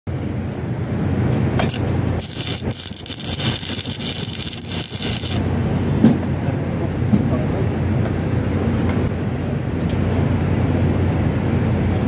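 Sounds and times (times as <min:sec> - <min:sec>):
welding arc crackling: 0:01.7 - 0:05.6.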